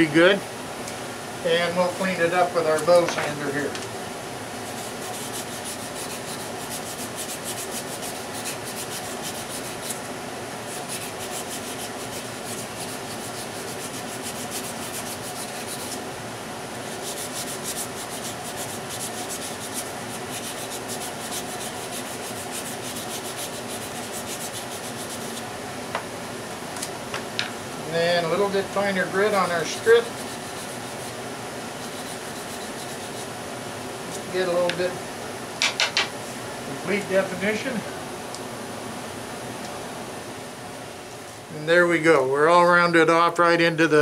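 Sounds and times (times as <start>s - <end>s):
sanding strip rubbing wood: 4.6s - 10.0s, 10.6s - 16.0s, 16.8s - 25.5s, 29.2s - 31.2s, 31.8s - 33.3s.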